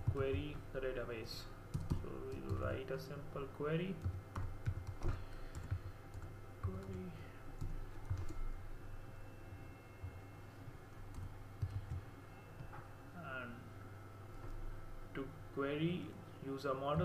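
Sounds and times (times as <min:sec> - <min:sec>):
steady low hum: 0:00.0 - 0:17.0
keyboard keys clicking: 0:07.6 - 0:08.4, 0:11.1 - 0:12.0.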